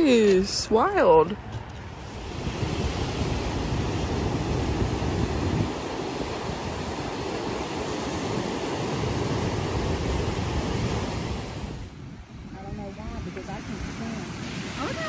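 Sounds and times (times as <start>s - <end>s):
wind gusting on microphone: 0.0s - 15.0s
surf breaking on rocks: 1.9s - 11.9s, 12.5s - 15.0s.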